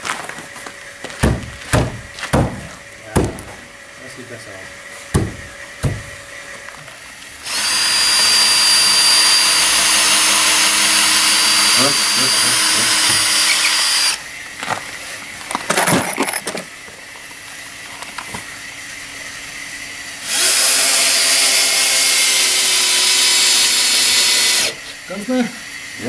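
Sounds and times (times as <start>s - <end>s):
cordless drill into timber: 7.4s - 14.2s, 20.2s - 24.8s.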